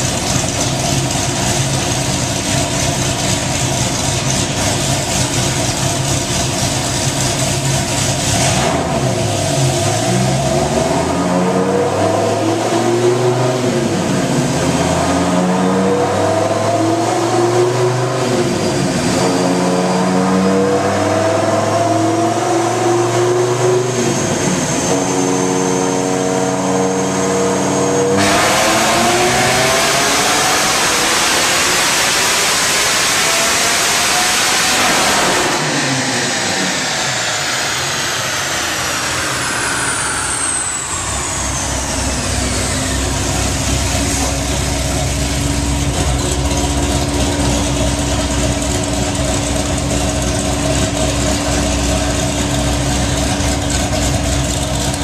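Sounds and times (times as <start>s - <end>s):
car engine revving on dyno: 0.0s - 55.0s
high whine: 23.3s - 55.0s.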